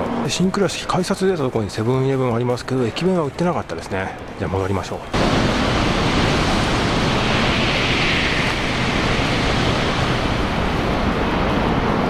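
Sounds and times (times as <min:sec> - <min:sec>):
high-speed train passing: 0:05.0 - 0:12.0.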